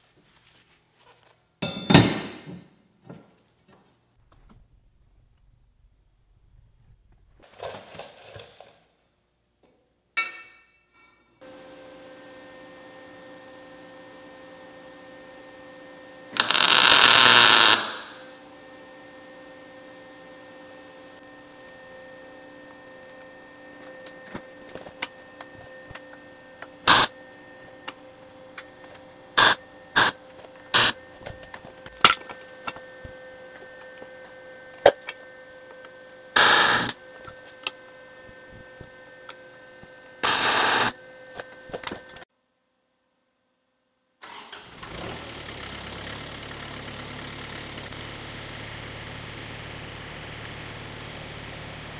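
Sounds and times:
metal clanks and knocks: 1.6 - 3.3
electrical hum: 11.4 - 42.2.

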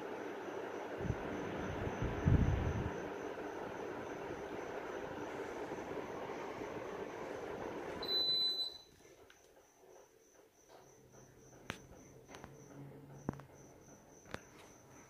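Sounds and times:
air conditioner fan blowing: 0.0 - 9.6
cricket chirping: 8.0 - 15.0.

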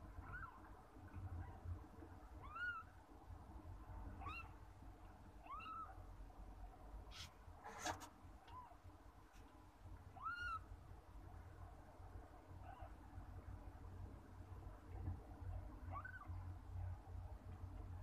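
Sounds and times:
brief rustle: 7.1 - 8.2.

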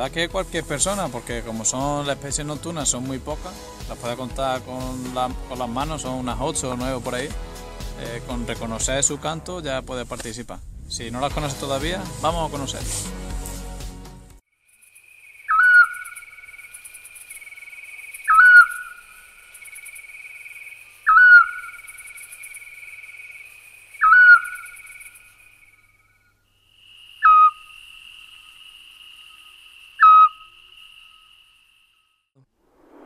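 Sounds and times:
owl whistled call: 15.5 - 16.4, 18.2 - 19.1, 21.0 - 21.9, 24.0 - 25.1, 27.2 - 27.7, 30.0 - 31.3.

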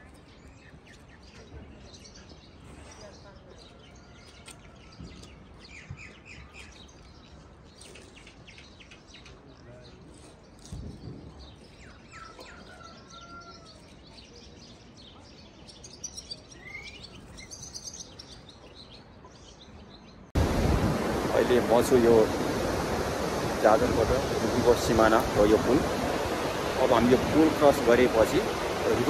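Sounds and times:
small birds chirping: 0.0 - 20.4, 21.1 - 29.0
loud steady rushing noise: 20.4 - 29.0.

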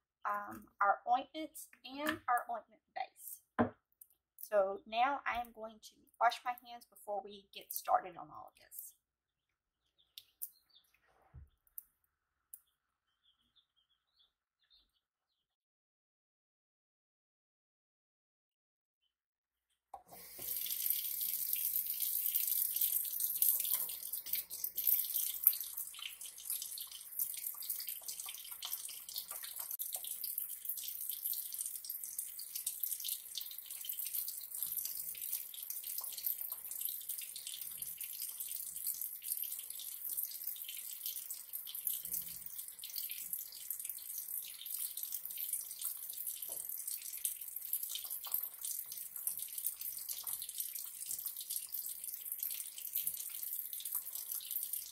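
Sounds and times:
hands being washed under water: 20.0 - 54.9
water running into sink: 20.0 - 54.9.

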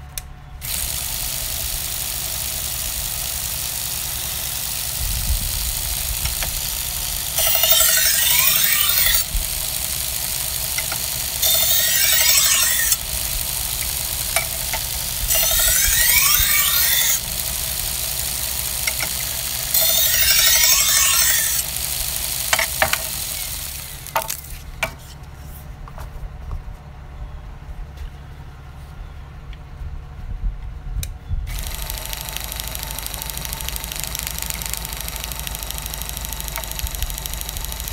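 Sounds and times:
low hum: 0.0 - 37.9
belt sharpener hissing: 0.6 - 25.1, 31.5 - 37.9
knife grinding on belt: 5.7 - 17.4, 18.8 - 25.2.

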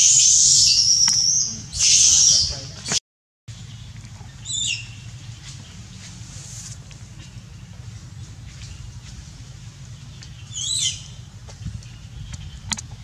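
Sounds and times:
baby monkey screaming: 0.0 - 2.6, 10.5 - 11.1
forest background: 0.0 - 13.0.

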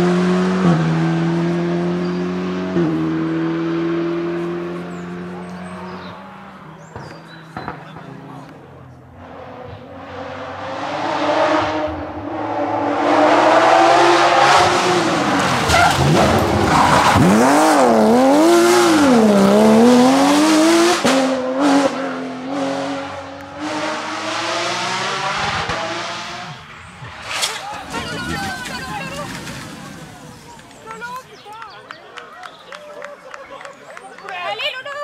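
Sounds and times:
rally car engine at high revs: 0.0 - 27.3.

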